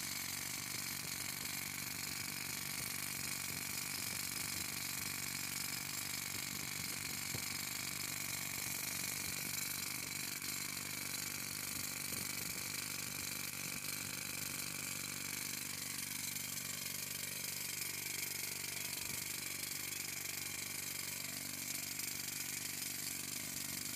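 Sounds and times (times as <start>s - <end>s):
pneumatic rock drills hammering: 0.0s - 23.9s.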